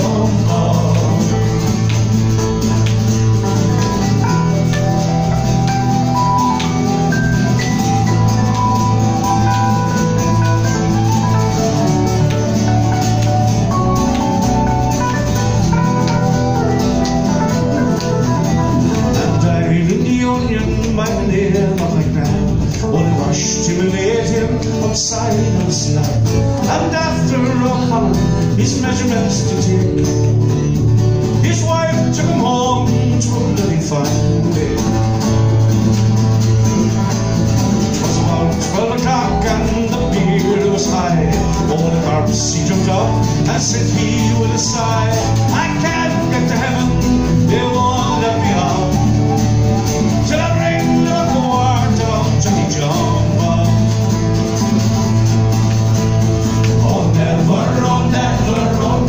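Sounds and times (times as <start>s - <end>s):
strummed acoustic guitars: 0.0s - 59.0s
whistle playing melody: 3.8s - 19.1s, 44.0s - 53.3s.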